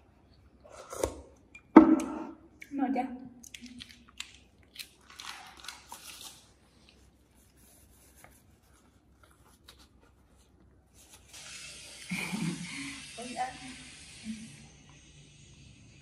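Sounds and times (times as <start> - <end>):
paper tissue rustling: 5.0 - 11.4.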